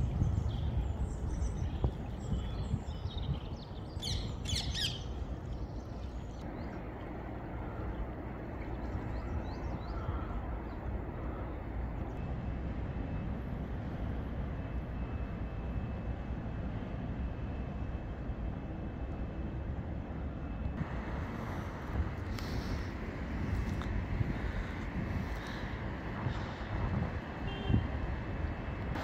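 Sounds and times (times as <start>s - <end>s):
steady low rumble: 0.0s - 14.3s, 20.4s - 29.0s
small birds chirping: 0.1s - 6.8s.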